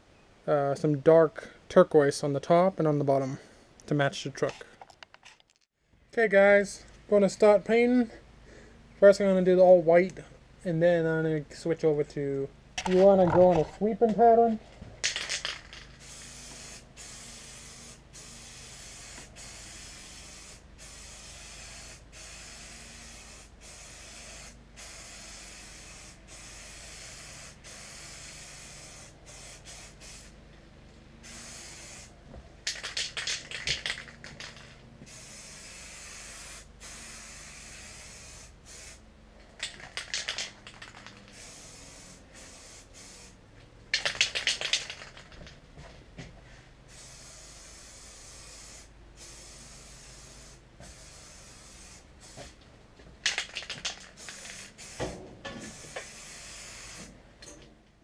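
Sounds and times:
spray can rattling when shaken: 12.8s - 13.8s, 15.0s - 30.3s, 31.2s - 43.3s, 43.9s - 45.6s, 53.2s - 55.0s, 55.7s - 57.0s
spray paint can hissing: 15.0s - 30.4s, 31.2s - 39.0s, 39.6s - 45.5s, 46.9s - 52.6s, 53.2s - 57.2s.

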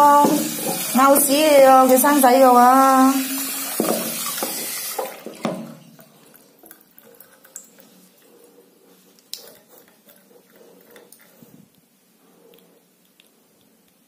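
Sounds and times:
tap running water: 0.0s - 8.0s
water dripping in basin: 3.8s - 8.0s.

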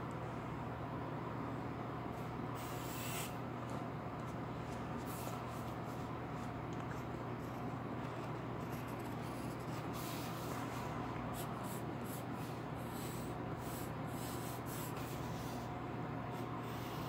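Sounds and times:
steady low hum: 0.0s - 17.0s
pencil scratching on paper: 8.6s - 10.4s.

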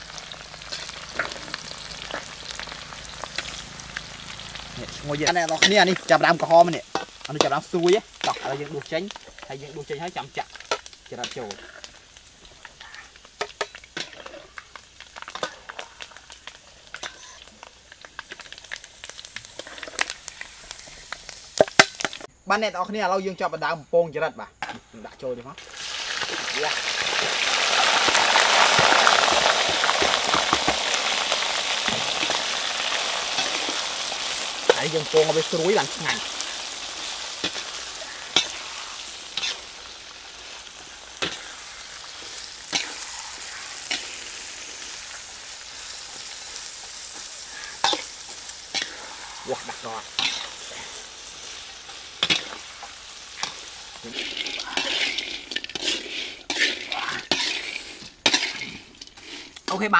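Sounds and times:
crickets sizzling in hot oil: 0.0s - 59.9s
metal spatula scraping pan: 37.4s - 39.7s, 50.2s - 50.9s, 53.4s - 59.4s.

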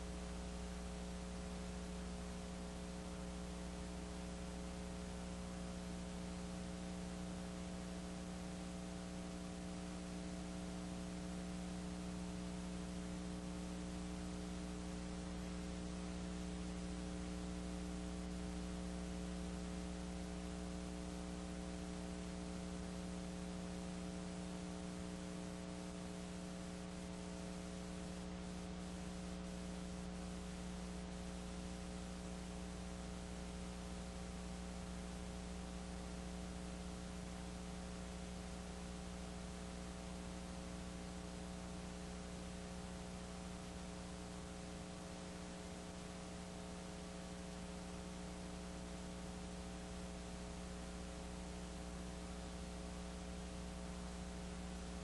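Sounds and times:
electrical mains hum: 0.0s - 55.0s.

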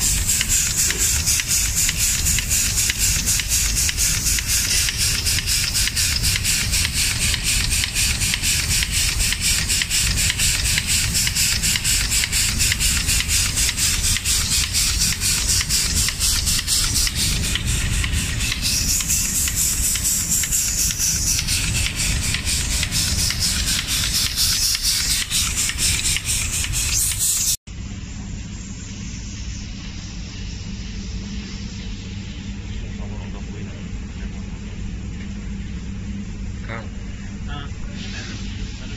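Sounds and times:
machine rumble with pulsing hiss: 0.0s - 38.9s.

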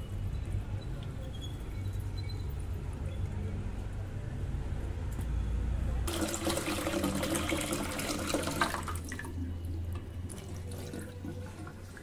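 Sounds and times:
tap water running into bowl: 6.1s - 12.0s.

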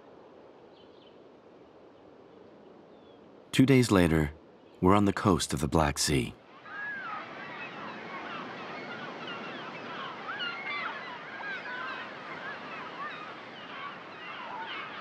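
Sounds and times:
bird calls: 6.6s - 15.0s.

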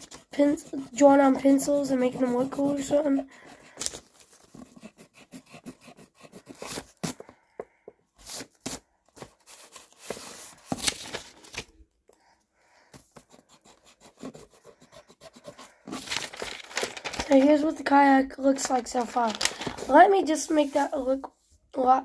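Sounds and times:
pencil scratching on paper: 0.0s - 3.8s, 4.4s - 7.3s, 13.2s - 16.0s, 19.9s - 21.2s
paper rubbing: 0.0s - 7.2s.

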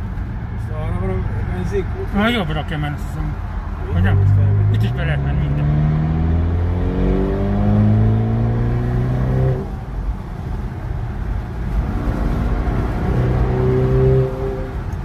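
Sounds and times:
road and wind noise: 0.0s - 15.0s
car engine accelerating: 3.7s - 15.0s.

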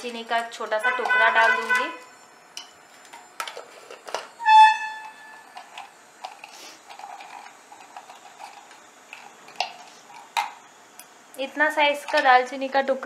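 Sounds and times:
spices crackling in hot oil: 5.4s - 13.0s.

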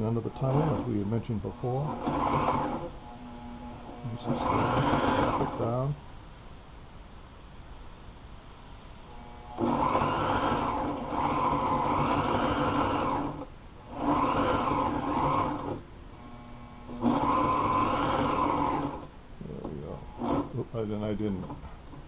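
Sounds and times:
sewing machine stitching: 0.0s - 2.9s, 3.8s - 5.8s, 9.5s - 15.8s, 16.9s - 19.1s, 20.1s - 20.6s.

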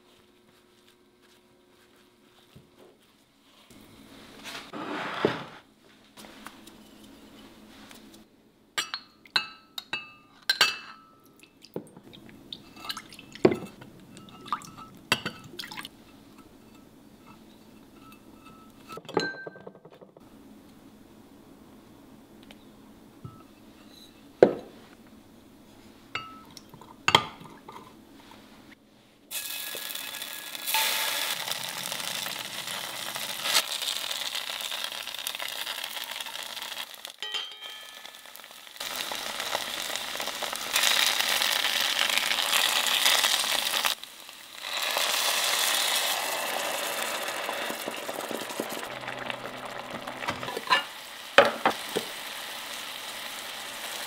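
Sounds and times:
tofu sizzling in oil: 29.3s - 37.2s, 37.9s - 54.0s
metal spoon clinking a glass mug: 37.2s - 38.3s.

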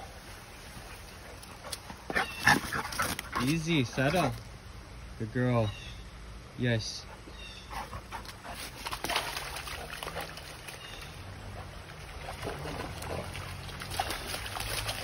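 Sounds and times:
dog splashing through creek: 7.6s - 15.0s.

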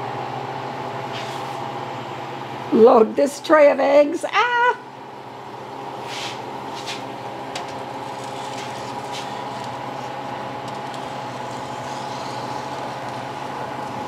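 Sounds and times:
freeze dryer humming: 0.0s - 14.0s
metal tray clicks and scrapes: 7.6s - 9.8s.

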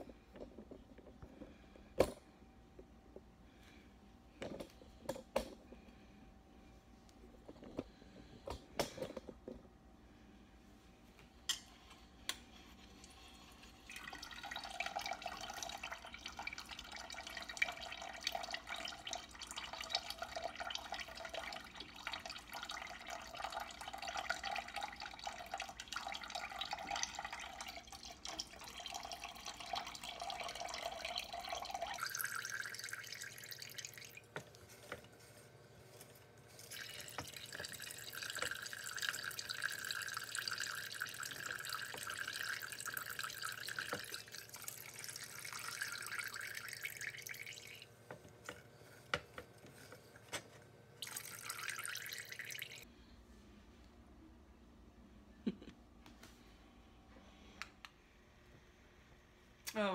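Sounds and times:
juice pouring into metal pot: 12.3s - 48.7s, 51.0s - 52.9s.

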